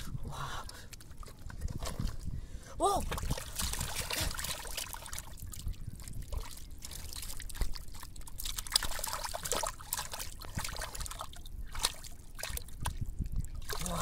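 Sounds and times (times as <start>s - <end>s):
trickling water: 0.2s - 14.0s
hands squelching in wet mud: 3.0s - 12.9s, 13.6s - 14.0s.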